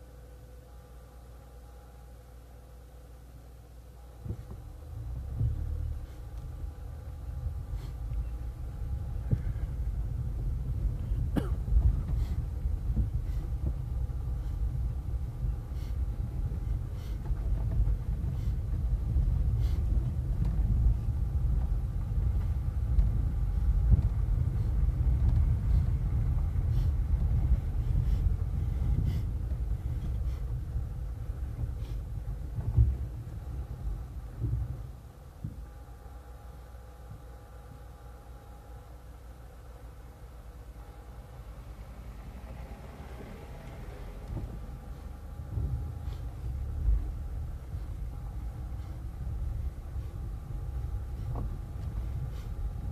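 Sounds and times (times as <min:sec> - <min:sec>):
car road rumble on dirt road: 0:04.1 - 0:37.9, 0:40.1 - 0:52.9
clicks and rattles from bumps: 0:08.0 - 0:35.8.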